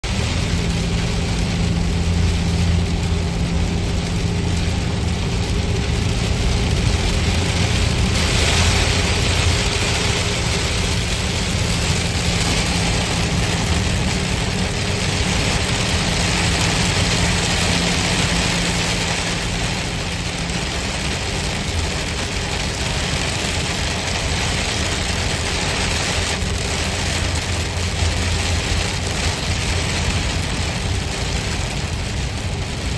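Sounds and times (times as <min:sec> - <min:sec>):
car engine hum: 0:00.0 - 0:32.9
rain on windshield: 0:00.0 - 0:32.9
tyres hissing on wet road: 0:00.0 - 0:32.9.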